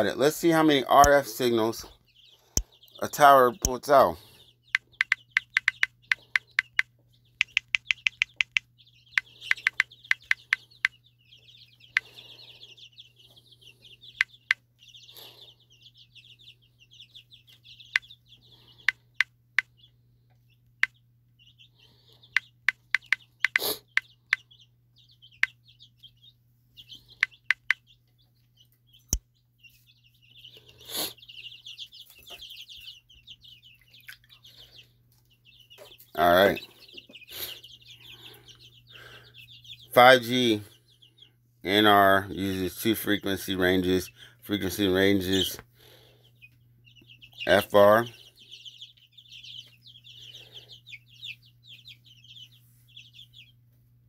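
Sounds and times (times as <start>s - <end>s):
birds calling: 0.0s - 54.0s
phone keyboard tapping: 4.8s - 10.5s, 27.5s - 27.8s.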